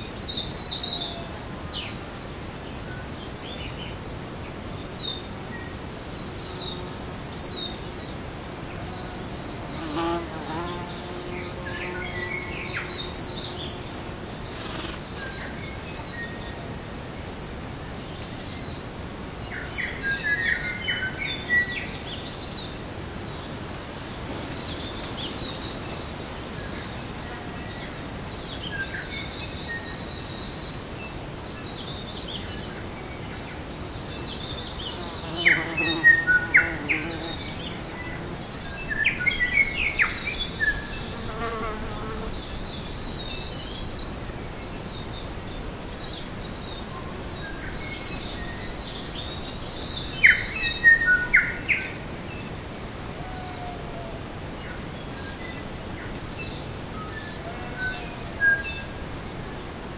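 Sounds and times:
small birds singing and chirping: 27.6 - 44.1
bees buzzing: 35.0 - 38.6.

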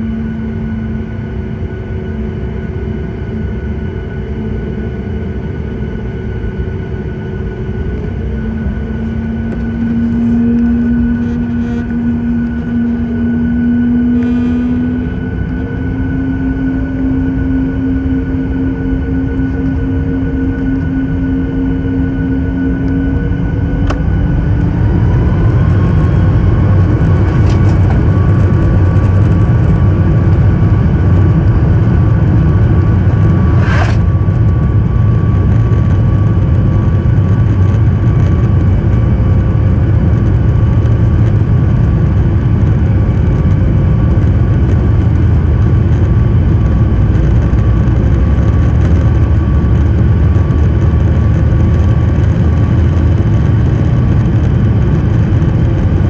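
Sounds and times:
jet engines spooling up: 0.0 - 39.7.

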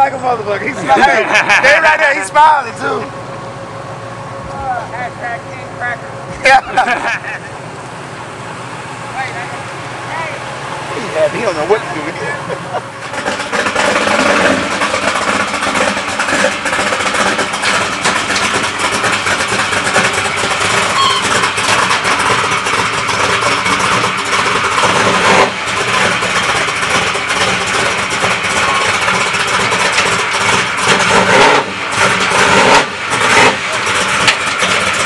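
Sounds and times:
car engine running: 0.0 - 35.0.

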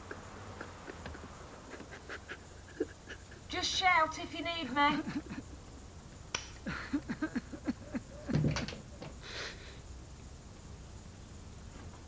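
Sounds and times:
man sobbing: 0.0 - 3.8, 4.8 - 5.6, 6.6 - 8.5.

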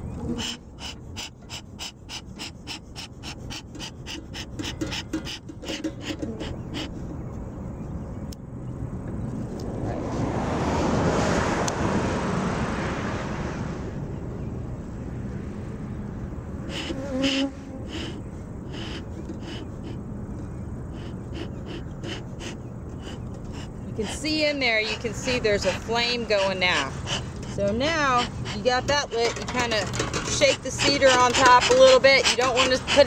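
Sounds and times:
smoker bellows puffing air: 0.0 - 7.2, 16.6 - 33.0
wind buffeting microphone: 0.0 - 16.8, 17.8 - 33.0
broad rushing sound: 9.6 - 17.0.

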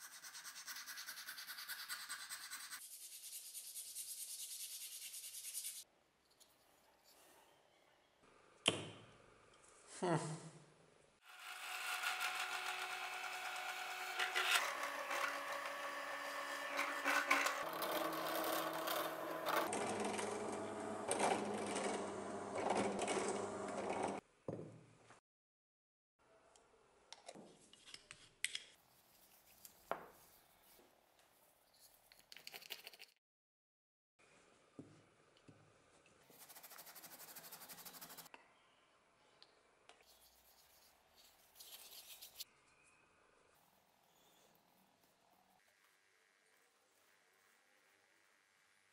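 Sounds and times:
drill press motor hum: 12.1 - 24.2.

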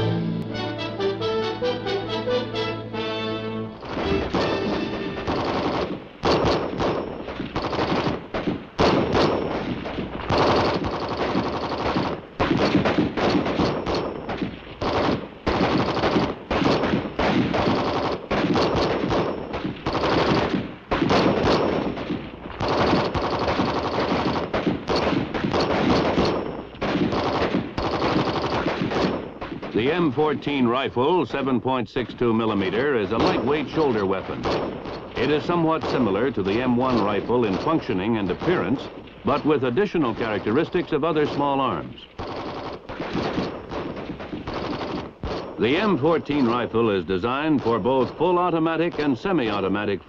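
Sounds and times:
automatic gunfire bursts: 3.8 - 30.0, 33.1 - 46.6
single rifle shots: 3.8 - 30.5, 32.0 - 49.9.

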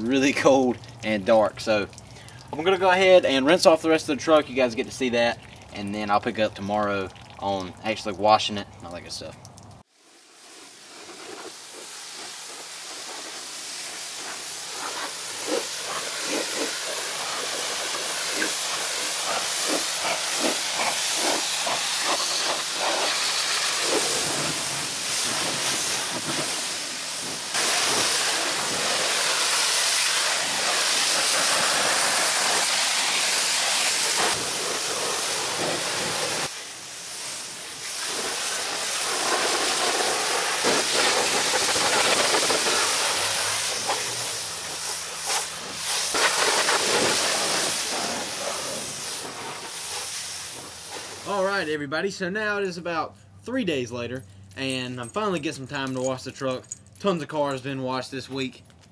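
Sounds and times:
pressure washer water spray hiss: 9.8 - 51.6.

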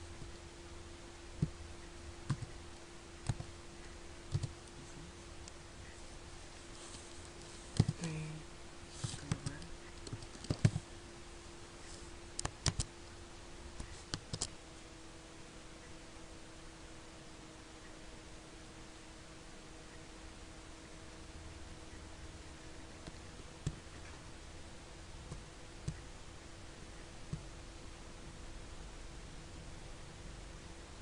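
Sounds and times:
faint low hum: 0.0 - 31.0
keyboard typing clicks: 2.3 - 2.6, 3.2 - 3.5, 4.3 - 4.7, 7.8 - 8.1, 9.0 - 10.8, 12.4 - 12.9, 13.8 - 14.6.

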